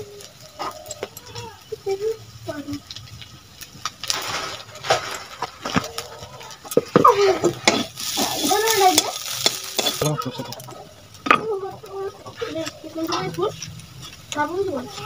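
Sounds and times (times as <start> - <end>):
food sizzling in oil: 0.0 - 15.0
metal clicking on pan: 6.4 - 11.6
steel spatula scraping pan: 6.7 - 10.6.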